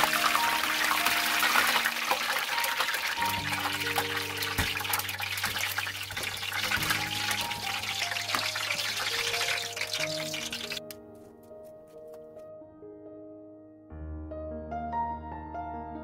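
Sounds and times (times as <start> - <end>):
hot oil sizzling: 0.0 - 10.9
background music of slow notes: 0.0 - 16.0.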